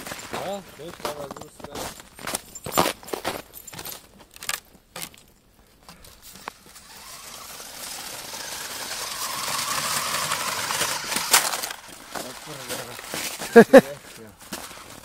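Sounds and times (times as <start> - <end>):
electric motor and gears whining: 6.3 - 12.6.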